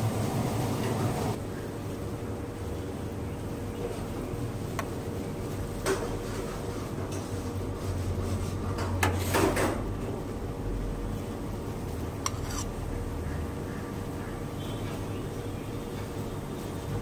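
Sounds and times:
metal spoon clinking and scraping: 12.2 - 12.7.

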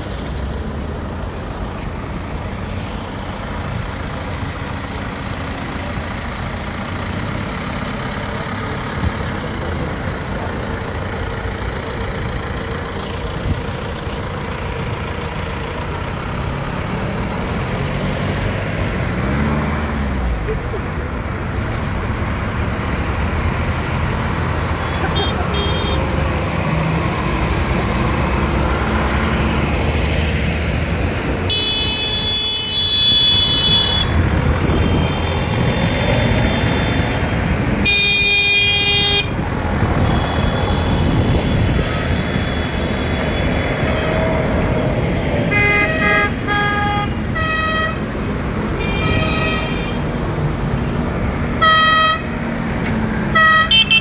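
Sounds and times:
tractors and trucks driving past: 0.0 - 54.0
horns honking: 24.7 - 26.1, 31.4 - 39.4, 40.0 - 44.4, 45.4 - 48.1, 48.7 - 50.1, 51.6 - 52.4, 53.3 - 54.0.

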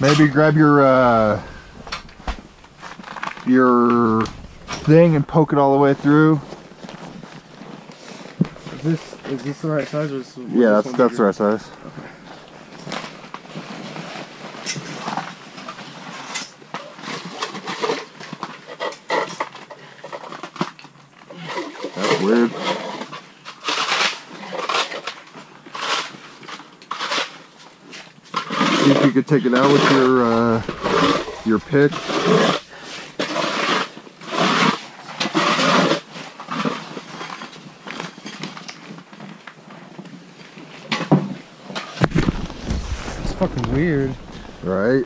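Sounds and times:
ice auger grinding into ice: 21.5 - 25.0, 28.4 - 37.4.

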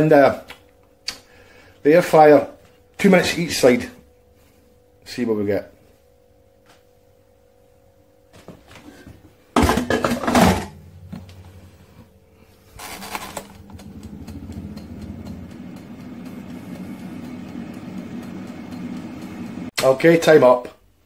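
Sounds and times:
air fryer fan humming: 0.0 - 20.6
timer dial turning: 13.7 - 19.7.

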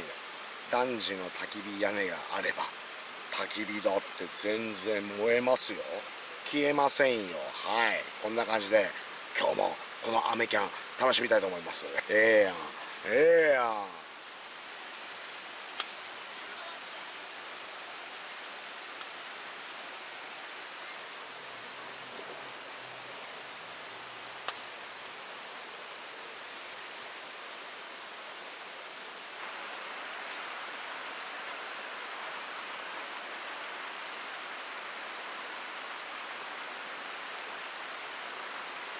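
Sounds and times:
rain falling: 0.0 - 38.9
campfire wood popping: 15.7 - 16.0, 24.4 - 24.8.

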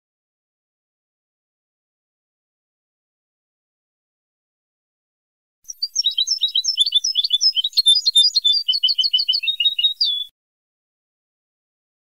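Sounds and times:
finch twittering song: 5.7 - 10.3.

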